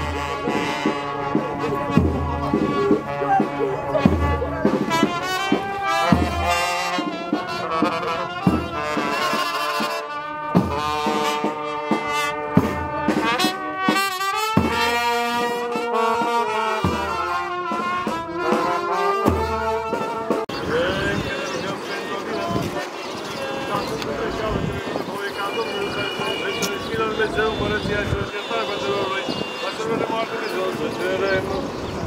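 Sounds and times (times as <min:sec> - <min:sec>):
deep low drum beat: 0:00.0 - 0:09.4, 0:10.5 - 0:15.1
brass band slow march: 0:00.0 - 0:21.5, 0:22.2 - 0:31.3.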